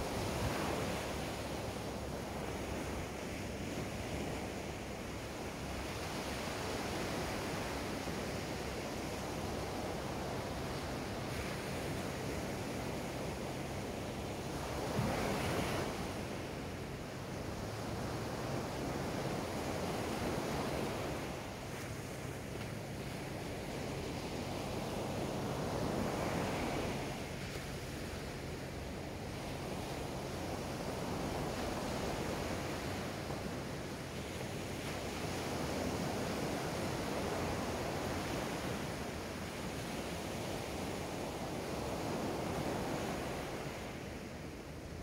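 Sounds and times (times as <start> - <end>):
waves breaking on sand: 0.0 - 45.0.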